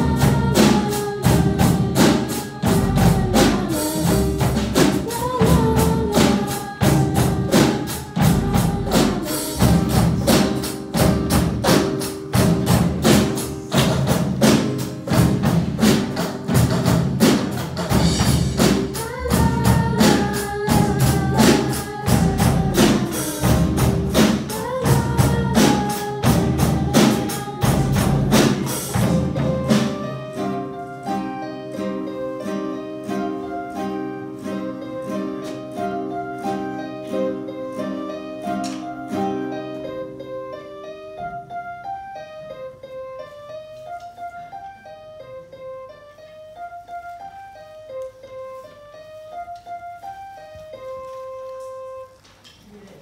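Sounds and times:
drum kit: 0.0s - 41.6s
acoustic guitar plucked notes: 0.0s - 43.3s
live band playing: 0.0s - 53.0s.

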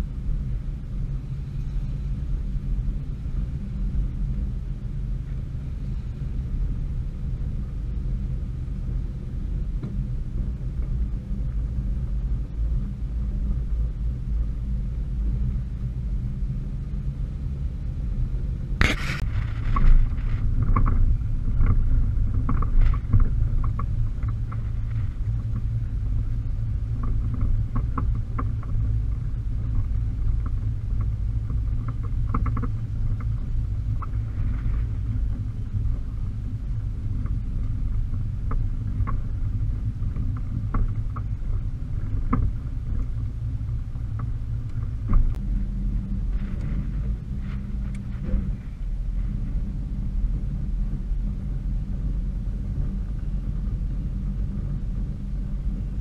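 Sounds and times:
car engine and road rumble: 0.0s - 56.0s
sharp clatter: 18.8s - 25.9s
light ticks and rattles: 19.1s - 50.6s.

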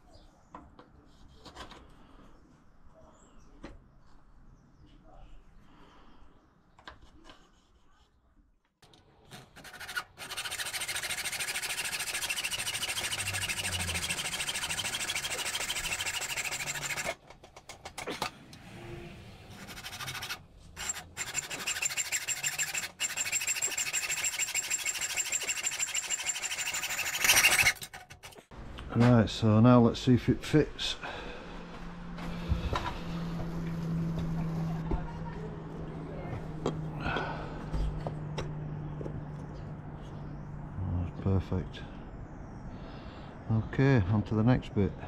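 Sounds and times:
hacksaw cutting steel: 9.4s - 17.2s, 19.5s - 28.4s.

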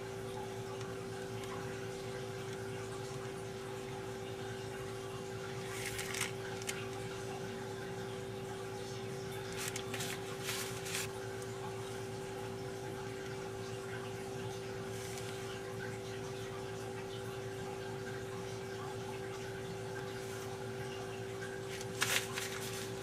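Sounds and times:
steady constant tone hum: 0.0s - 23.0s
paper cone rustling: 5.6s - 6.8s, 9.4s - 11.2s, 21.7s - 23.0s.

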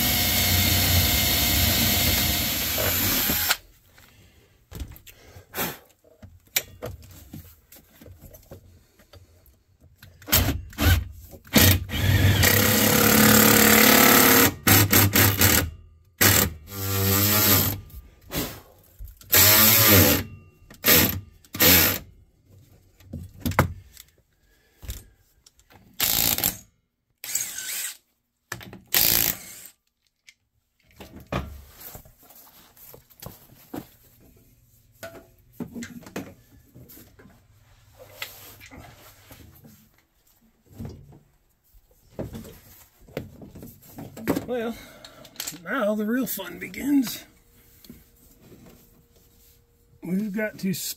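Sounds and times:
cordless drill driving fasteners: 0.0s - 3.6s, 10.2s - 17.8s, 19.3s - 20.2s, 20.8s - 22.0s, 26.0s - 26.6s, 27.2s - 28.0s, 28.9s - 29.8s.

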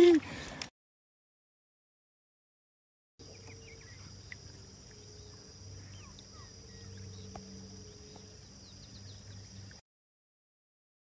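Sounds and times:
low hum: 3.2s - 9.8s
bird chirps and calls: 5.8s - 7.3s.

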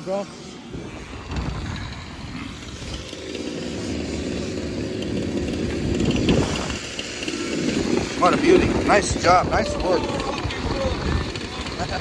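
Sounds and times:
small two-stroke engine running: 0.0s - 12.0s.

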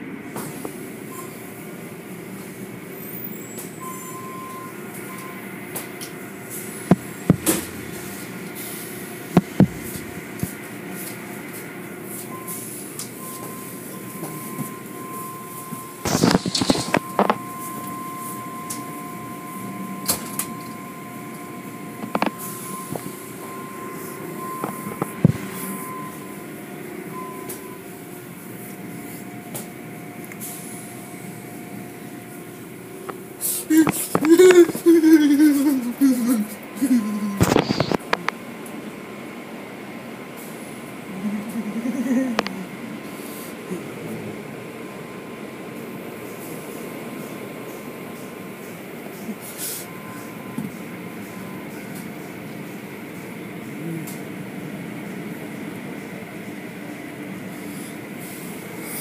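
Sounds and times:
car wash machinery humming: 0.0s - 59.0s
thin high whine: 12.1s - 33.0s, 33.6s - 38.2s.

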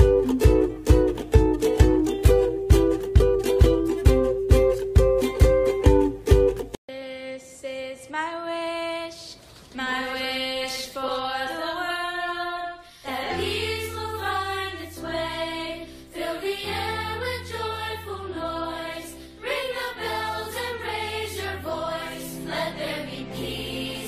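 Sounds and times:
choir singing held notes: 9.9s - 24.0s.

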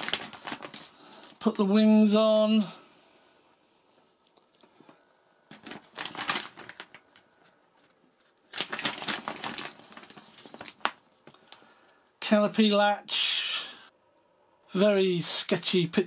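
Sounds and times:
paper pages rustling: 0.0s - 1.4s, 5.5s - 11.6s
sharp paper crackle: 0.0s - 1.4s, 5.5s - 11.7s.

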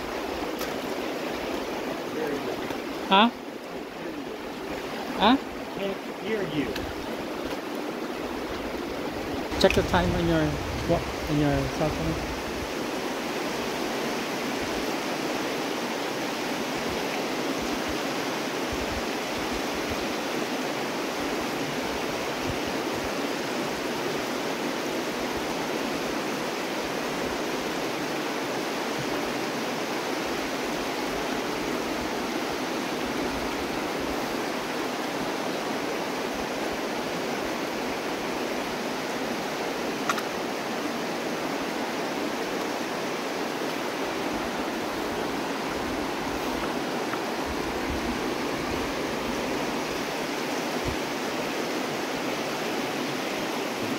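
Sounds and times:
water rushing over rocks: 0.0s - 53.9s
brief click: 40.0s - 40.3s.

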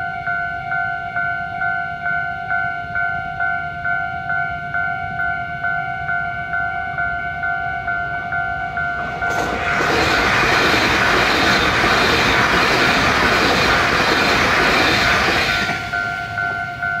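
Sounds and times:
crossing warning bell ringing: 0.0s - 17.0s
train rushing past: 8.2s - 17.0s.

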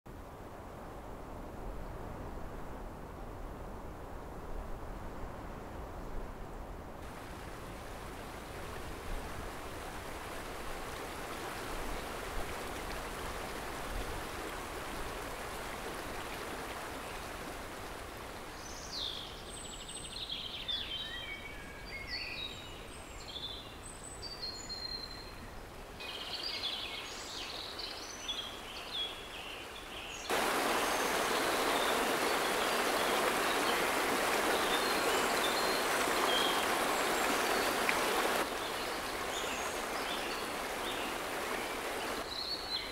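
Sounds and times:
muddy river rushing: 7.0s - 19.0s, 29.9s - 42.9s
small birds chirping: 26.0s - 42.9s.

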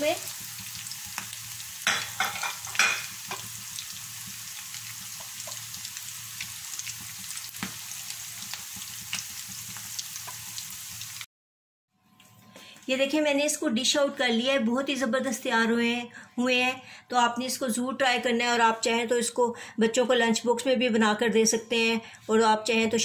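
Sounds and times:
food deep-frying in hot oil: 0.0s - 11.3s.

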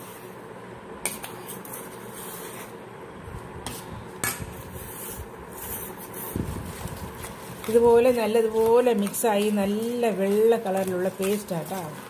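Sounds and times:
spoon scraping steel bowl: 7.2s - 12.0s.

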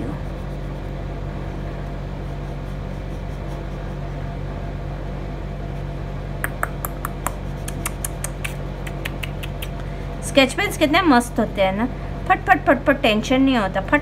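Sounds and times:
steady low hum: 0.0s - 14.0s
pen ticking on paper: 6.5s - 9.7s.

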